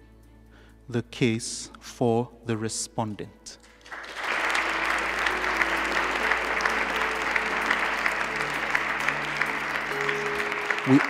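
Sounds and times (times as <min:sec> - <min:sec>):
background music of held notes: 0:00.0 - 0:11.0
audience applauding: 0:03.8 - 0:11.0.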